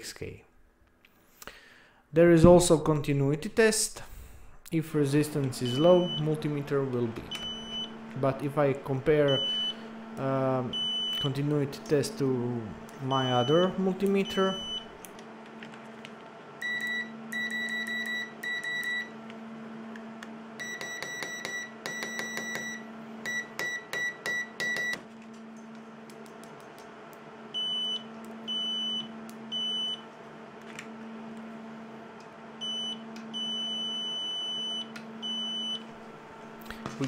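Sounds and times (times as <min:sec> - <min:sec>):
faint steady hum: 0:00.0 - 0:37.0
multimeter beeps: 0:05.6 - 0:06.4, 0:07.3 - 0:08.0, 0:09.2 - 0:09.8, 0:10.7 - 0:11.4, 0:13.1 - 0:14.9, 0:16.6 - 0:19.1, 0:20.6 - 0:25.0, 0:27.6 - 0:30.0, 0:32.6 - 0:35.8.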